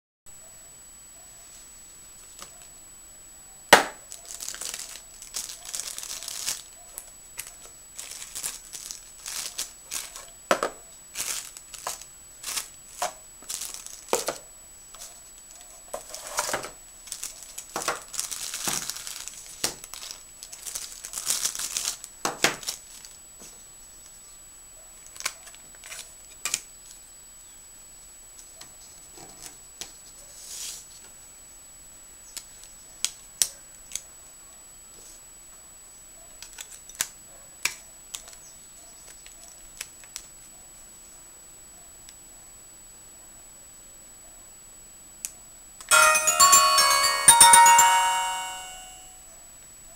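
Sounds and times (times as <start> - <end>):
crackling plastic and cardboard: 3.8 - 14.4, 15.0 - 23.2, 25.0 - 27.0.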